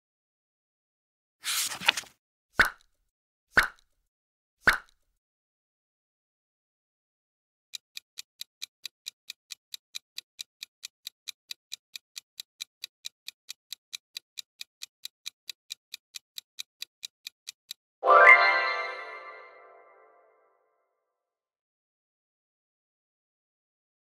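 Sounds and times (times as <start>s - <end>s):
clock ticking: 7.7s - 17.8s.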